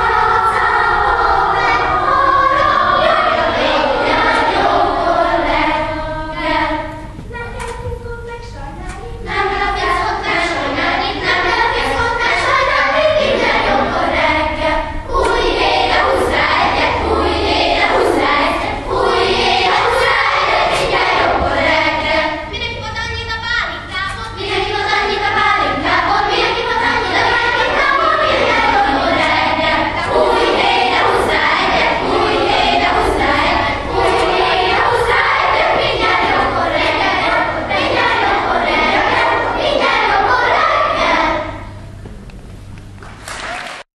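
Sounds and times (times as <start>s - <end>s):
children's choir singing: 0.0s - 7.7s, 8.3s - 22.5s, 23.8s - 42.0s.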